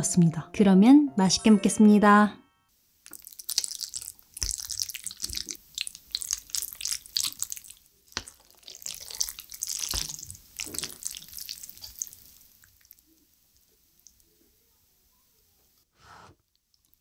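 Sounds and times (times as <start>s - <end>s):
chopsticks squishing sticky noodles: 3.0s - 14.4s.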